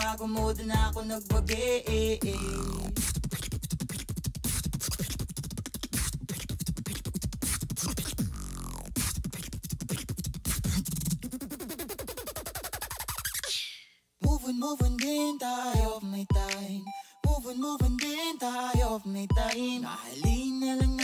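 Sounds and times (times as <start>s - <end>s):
stuttering electronic beat: 0.0s - 13.1s, 14.2s - 15.2s, 15.8s - 21.0s.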